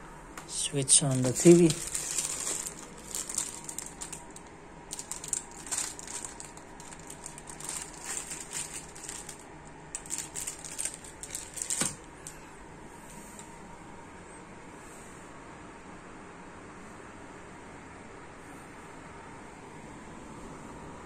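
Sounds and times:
plastic bag crinkling: 0:00.9 - 0:12.4.

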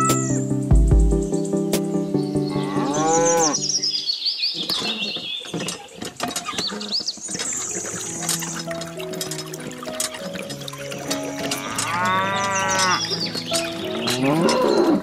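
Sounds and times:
cow mooing: 0:02.5 - 0:03.6, 0:11.2 - 0:13.2, 0:13.9 - 0:15.0.

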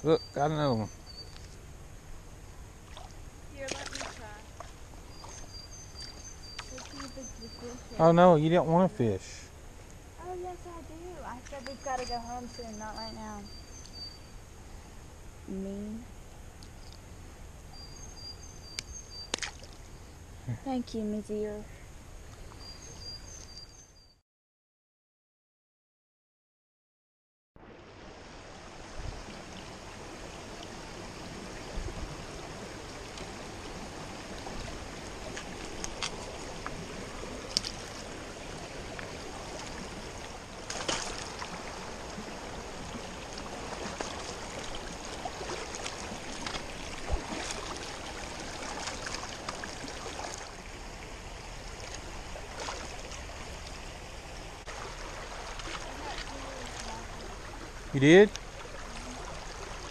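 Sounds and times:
creek water flowing: 0:00.0 - 0:15.4, 0:27.6 - 0:59.9.

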